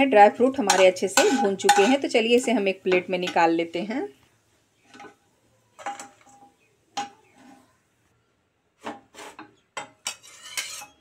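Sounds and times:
steel spatula scraping and clinking: 0:00.5 - 0:03.5, 0:05.8 - 0:07.7, 0:08.8 - 0:11.0.

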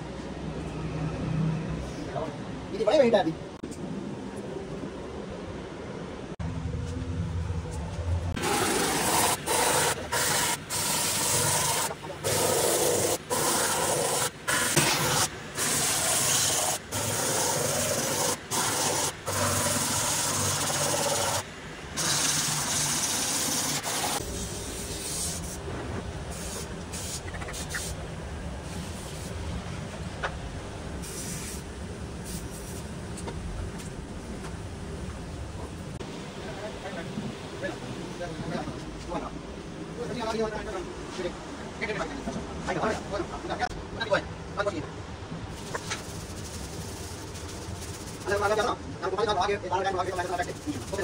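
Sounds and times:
low rumble: 0:06.3 - 0:08.4.

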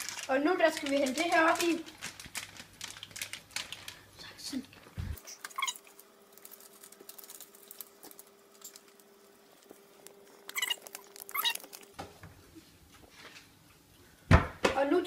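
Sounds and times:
foil bag crinkling: 0:00.0 - 0:12.0.

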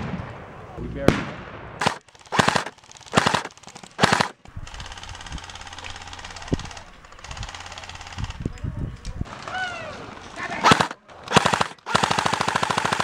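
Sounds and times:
airsoft gun full-auto bursts: 0:01.8 - 0:08.4, 0:10.6 - 0:13.0.

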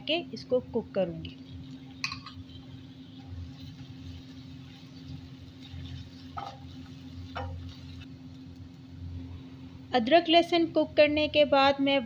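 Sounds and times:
spatula stirring in a wok: 0:01.5 - 0:08.1
spatula knocking against pan: 0:06.4 - 0:06.6.

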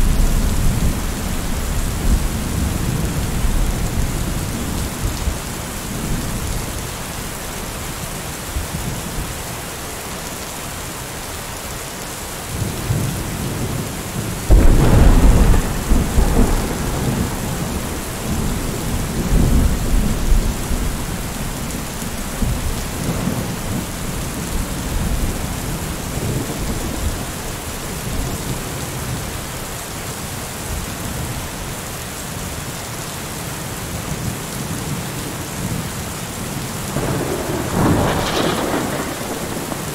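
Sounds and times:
steady rain hiss: 0:00.0 - 0:39.9
rolling thunder: 0:12.9 - 0:27.4, 0:37.0 - 0:39.9.

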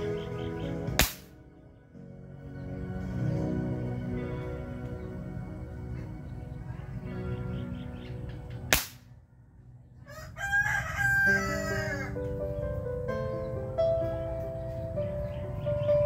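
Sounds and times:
background music with sustained tones: 0:00.0 - 0:16.0
airgun shot: 0:01.0 - 0:01.4, 0:08.7 - 0:09.1
rooster crowing: 0:10.0 - 0:12.2.

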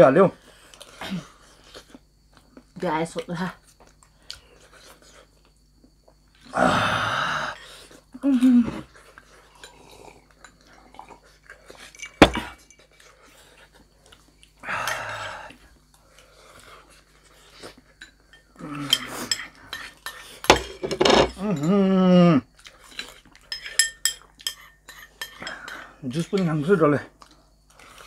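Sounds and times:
cutlery and dishes clinking: 0:18.0 - 0:21.7, 0:22.9 - 0:26.5.

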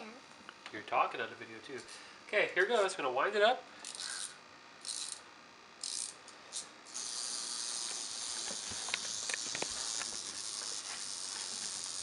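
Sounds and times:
clockwork winding rasps: 0:03.8 - 0:12.0
spring motor whirring: 0:03.8 - 0:12.0.

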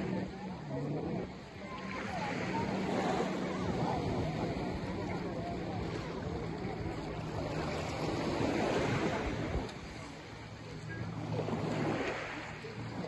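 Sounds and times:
small waves washing over pebbles: 0:06.9 - 0:10.3, 0:11.2 - 0:13.0.

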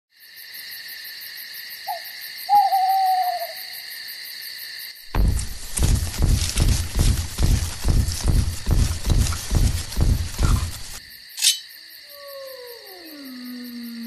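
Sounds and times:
crickets chirping: 0:00.1 - 0:14.0
owl hooting: 0:01.9 - 0:03.7
heavy low rhythmic thuds: 0:05.1 - 0:11.0.

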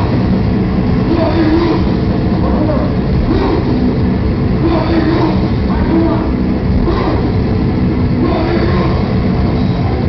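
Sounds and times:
heavy metal band playing: 0:00.0 - 0:10.0
wavering voices: 0:00.9 - 0:10.0.

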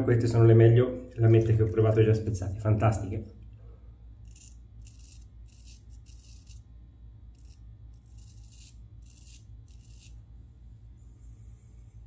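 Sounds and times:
razor scraping stubble: 0:04.2 - 0:10.3.

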